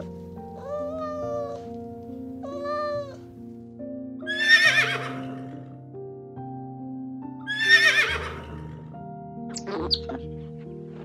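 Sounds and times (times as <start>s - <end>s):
background music: 0.0s - 11.0s
cat meowing: 2.4s - 3.2s
horse whinnying: 4.3s - 5.5s, 7.5s - 8.7s.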